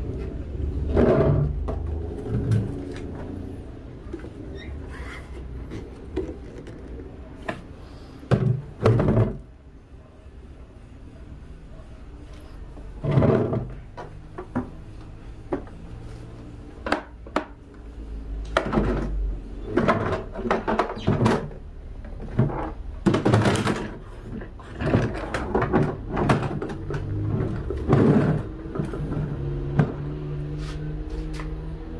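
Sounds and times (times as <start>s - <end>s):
objects knocking and clicking: 8.3s - 9.5s, 18.5s - 30.2s.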